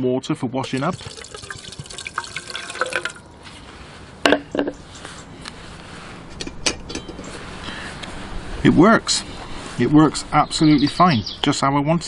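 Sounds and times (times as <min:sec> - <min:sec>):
water poured into metal pot: 0:00.6 - 0:03.4.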